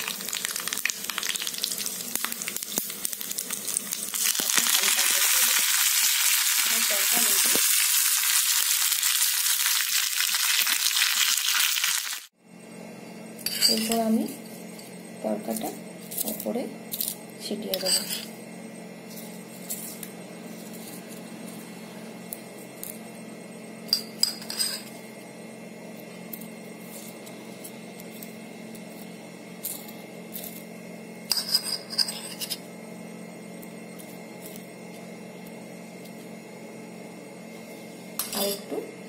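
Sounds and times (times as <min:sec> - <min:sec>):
steady low hum: 0:12.3 - 0:39.0
metal spoon clinking and scraping: 0:13.4 - 0:14.0, 0:16.1 - 0:18.3, 0:23.9 - 0:24.9, 0:31.3 - 0:32.6, 0:38.2 - 0:38.7.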